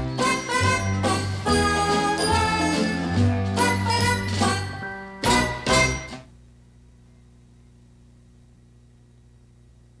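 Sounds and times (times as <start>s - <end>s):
tv show theme music: 0.0s - 6.3s.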